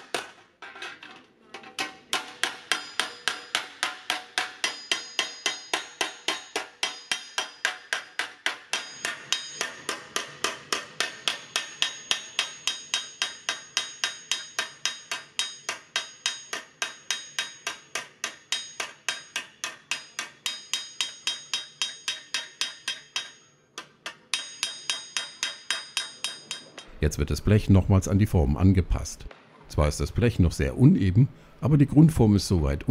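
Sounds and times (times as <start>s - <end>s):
hammer striking sheet metal: 1.8s - 26.9s.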